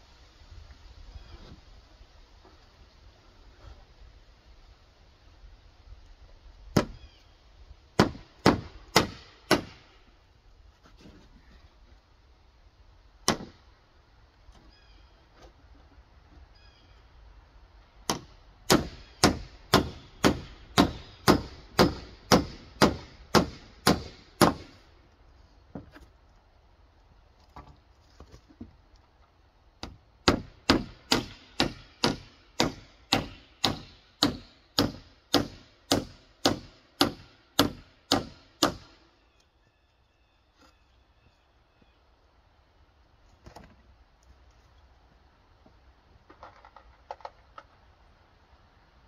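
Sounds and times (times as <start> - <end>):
hammer nailing wood: 8.0 - 9.8, 13.2 - 13.6, 18.1 - 24.7, 29.8 - 38.9.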